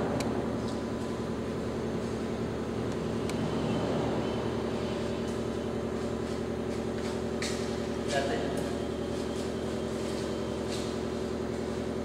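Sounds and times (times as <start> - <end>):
steady machine hum: 0.0 - 12.0.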